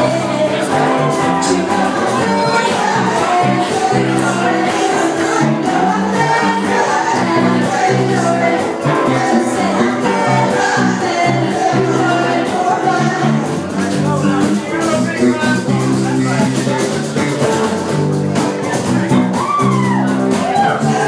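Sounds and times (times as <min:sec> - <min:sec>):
woman singing into a microphone: 0:00.0 - 0:13.6
live band playing: 0:00.0 - 0:21.0.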